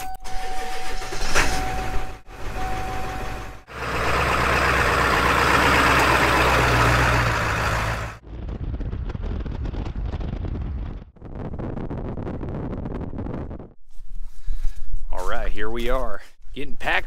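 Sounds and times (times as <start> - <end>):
truck engine running: 0.5 - 8.2
steady tone: 1.4 - 8.2
wind on microphone: 8.2 - 14.0.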